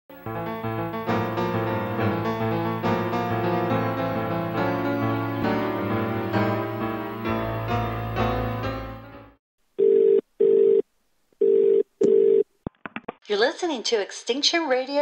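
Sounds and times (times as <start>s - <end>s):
instrumental intro music: 0.1s - 9.4s
telephone ring tone beeps: 9.8s - 10.8s, 11.4s - 12.4s.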